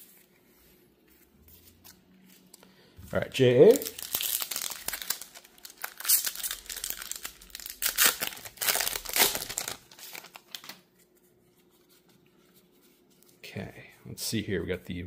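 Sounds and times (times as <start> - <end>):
foil wrapper crinkling and tearing: 3.7 - 10.8.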